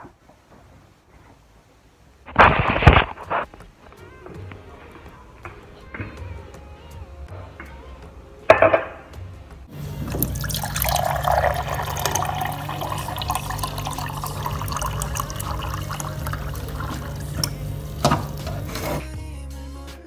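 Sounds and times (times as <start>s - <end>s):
water filling a glass: 9.7s - 18.7s.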